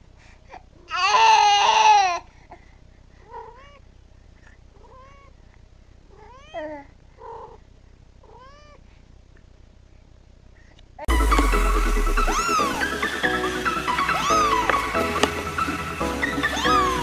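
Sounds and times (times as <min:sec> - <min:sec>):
baby crying: 0:00.9 - 0:02.2, 0:12.1 - 0:17.0
cat meowing softly: 0:03.2 - 0:03.8, 0:04.8 - 0:05.4, 0:06.1 - 0:07.6, 0:08.2 - 0:08.8.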